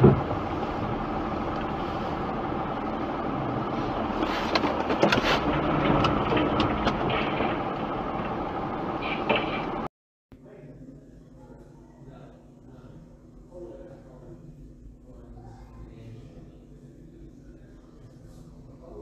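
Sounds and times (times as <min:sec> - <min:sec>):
car engine and road noise: 0:00.0 - 0:09.9.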